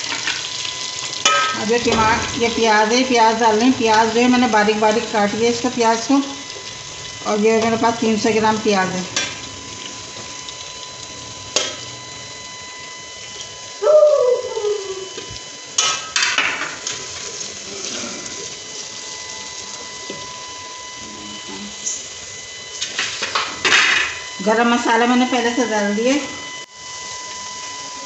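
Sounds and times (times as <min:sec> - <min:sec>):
faint frying hiss: 0:00.0 - 0:28.0
short falling whine-like call: 0:09.4 - 0:15.8, 0:18.0 - 0:28.0.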